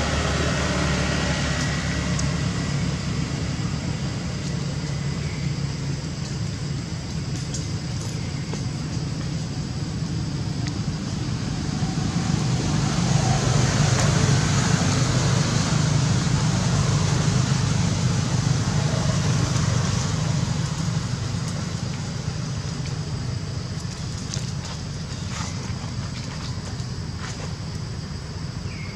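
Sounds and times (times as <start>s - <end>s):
motor vehicle passing: 11.3s - 21.8s.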